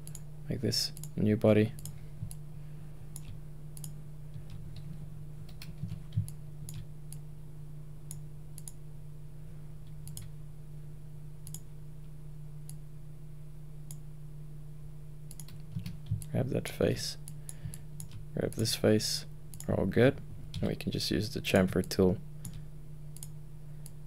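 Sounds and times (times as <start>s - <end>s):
computer mouse clicks: 0.0s - 0.2s, 1.8s - 2.4s, 3.1s - 4.9s, 5.5s - 7.2s, 8.1s - 8.8s, 10.0s - 10.3s, 11.4s - 11.7s, 15.3s - 16.3s, 17.3s - 18.7s, 23.2s - 24.0s
steady low hum: 0.0s - 24.0s.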